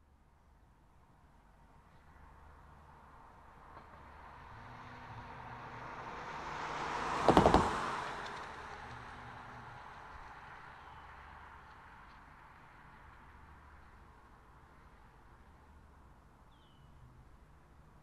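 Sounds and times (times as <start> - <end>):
car passing: 2.8 - 14.2.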